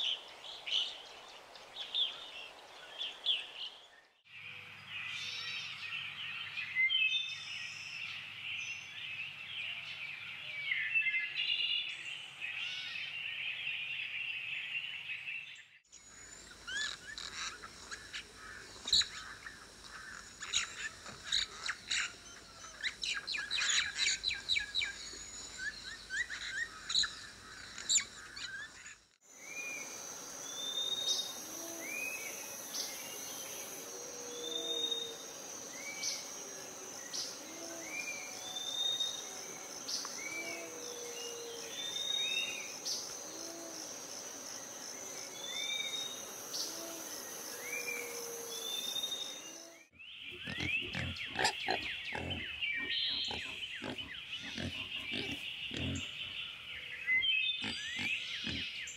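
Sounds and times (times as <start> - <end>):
birds chirping and trilling: 0.0 - 58.9
high insect drone: 15.9 - 49.9
wild boar grunting: 50.3 - 56.4, 57.6 - 58.8.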